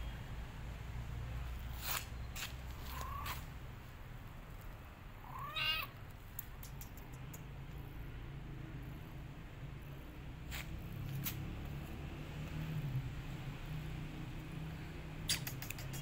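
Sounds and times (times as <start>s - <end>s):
kitten meowing: 2.8s - 3.5s, 5.2s - 6.0s
sharp clicks: 6.0s - 7.6s, 15.2s - 16.0s.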